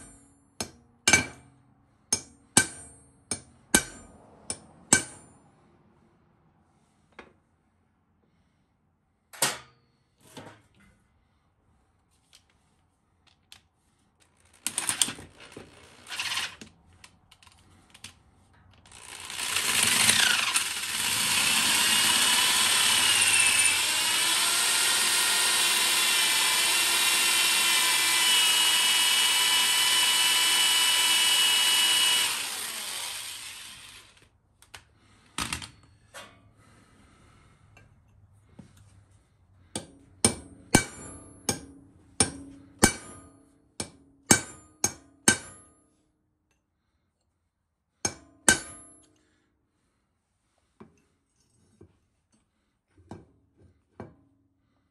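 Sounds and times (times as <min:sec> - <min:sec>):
electric drill whining: 0:14.6 - 0:16.7, 0:18.9 - 0:34.3.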